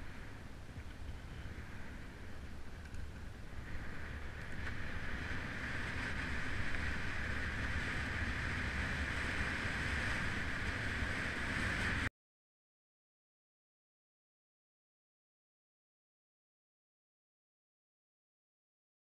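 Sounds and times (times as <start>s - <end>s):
tyres rumbling on asphalt: 0.0s - 12.1s
wind rushing over microphone: 0.0s - 12.1s.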